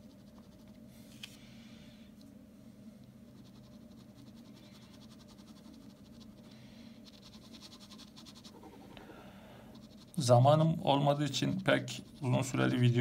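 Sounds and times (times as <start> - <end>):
low steady hum: 0.0 - 13.0
pen scratching on paper: 3.3 - 8.9, 9.7 - 10.4, 11.0 - 13.0.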